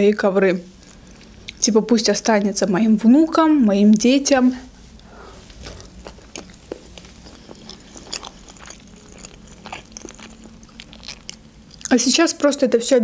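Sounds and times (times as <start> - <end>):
close chewing with wet smacks: 5.4 - 12.0.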